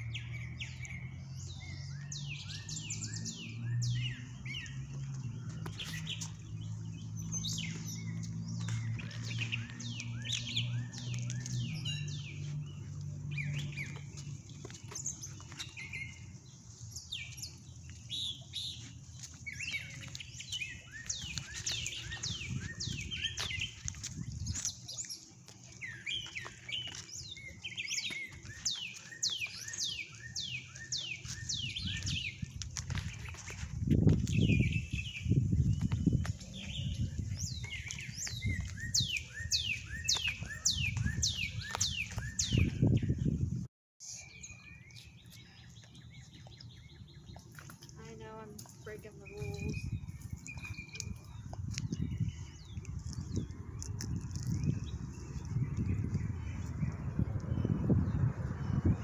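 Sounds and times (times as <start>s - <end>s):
songbirds chirping and singing: 0.0s - 59.0s.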